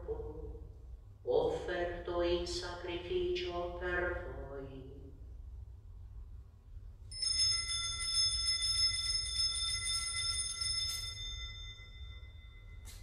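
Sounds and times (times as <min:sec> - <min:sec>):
altar bells ringing: 0:07.1 - 0:13.0.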